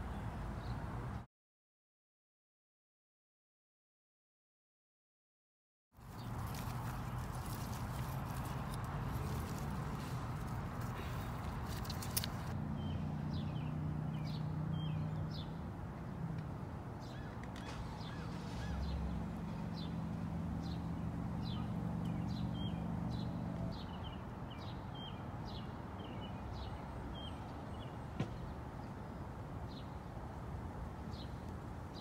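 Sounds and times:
low engine hum: 6.0 - 24.3.

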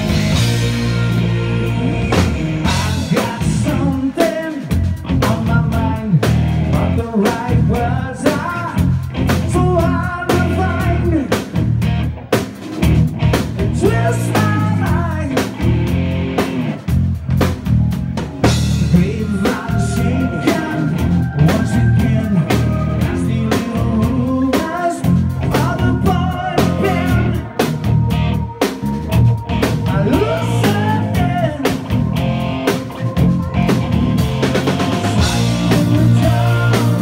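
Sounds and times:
drum kit beating: 0.0 - 37.0
live rock band playing: 0.0 - 37.0
man singing: 1.0 - 11.5, 13.6 - 15.6, 18.7 - 27.9, 29.7 - 32.2, 35.0 - 37.0.

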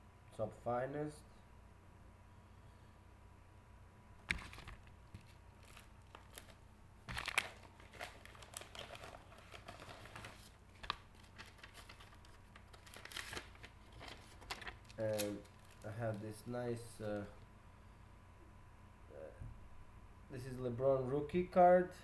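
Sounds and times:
plastic packaging crinkling: 4.2 - 16.5.

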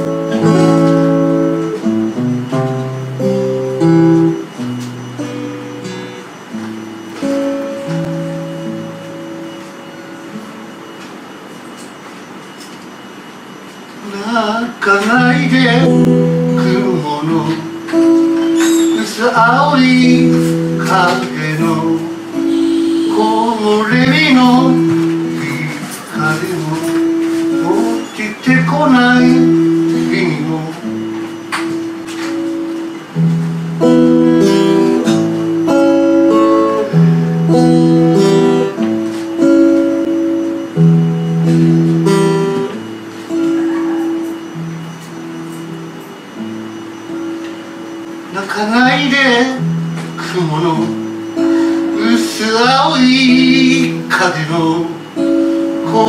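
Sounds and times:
acoustic guitar: 0.0 - 56.0
man singing: 14.0 - 17.8, 18.9 - 22.5, 23.1 - 31.1, 48.3 - 51.1, 51.8 - 55.2, 55.8 - 56.0.

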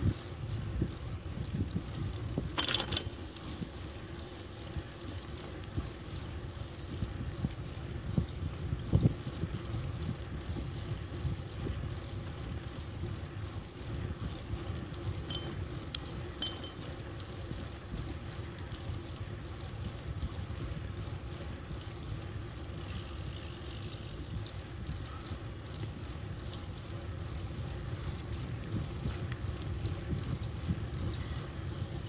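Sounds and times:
wind rushing over microphone: 6.8 - 15.6, 27.4 - 32.0.

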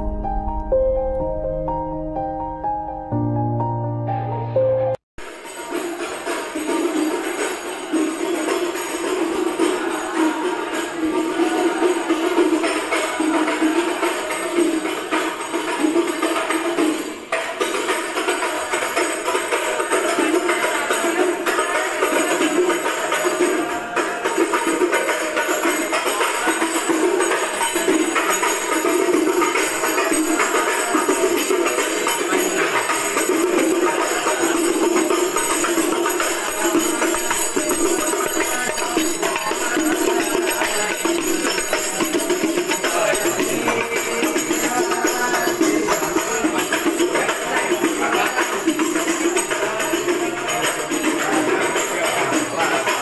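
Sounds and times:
piano tune: 0.0 - 5.0
frame drums with jingles: 5.2 - 53.0.

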